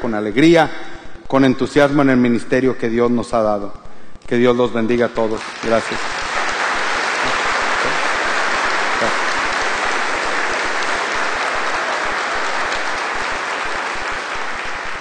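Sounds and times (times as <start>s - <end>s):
congregation applauding: 5.3s - 15.0s.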